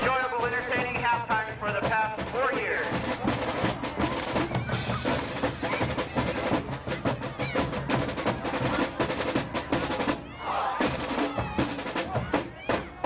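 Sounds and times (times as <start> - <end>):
drumline playing snare and bass drums: 0.0 - 13.0.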